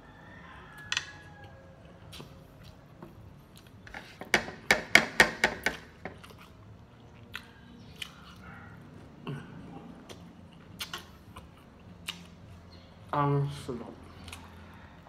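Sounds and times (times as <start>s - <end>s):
sharp knocks or clicks: 4.2s - 6.2s.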